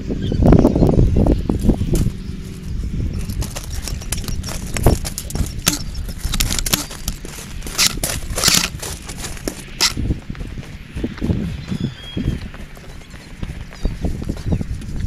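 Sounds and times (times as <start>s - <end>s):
wind rumbling on microphone: 0.0s - 15.0s
footsteps crunching: 1.4s - 15.0s.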